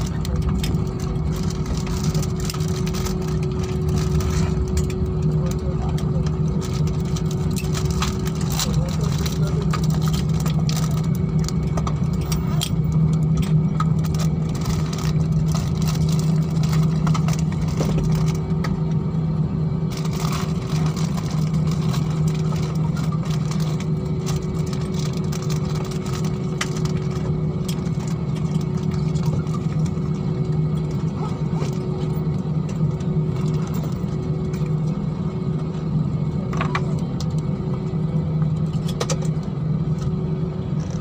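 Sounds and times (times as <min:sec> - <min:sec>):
low jet engine hum: 0:00.0 - 0:41.0.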